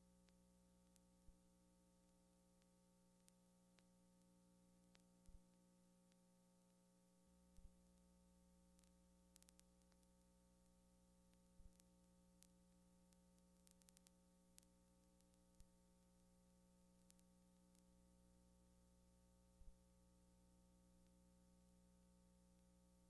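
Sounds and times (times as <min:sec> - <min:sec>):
faint steady hum: 0:00.0 - 0:23.0
tiny clicks: 0:08.8 - 0:10.1, 0:11.3 - 0:15.7.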